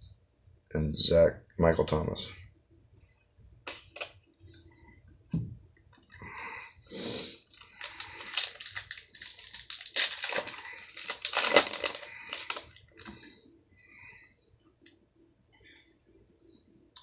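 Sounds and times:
foil wrapper crinkling and tearing: 0:07.4 - 0:13.1.

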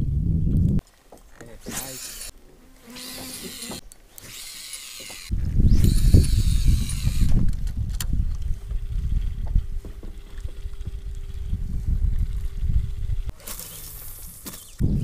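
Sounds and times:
wind rumble on microphone: 0:00.0 - 0:00.8, 0:05.3 - 0:13.4, 0:14.7 - 0:15.0
fishing reel whirring: 0:01.8 - 0:02.3, 0:02.9 - 0:07.4, 0:10.0 - 0:14.8.

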